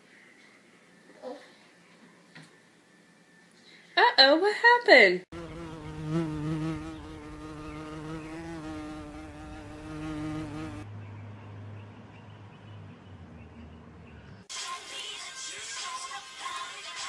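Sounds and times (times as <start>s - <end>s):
flying insect buzzing: 5.3s - 10.9s.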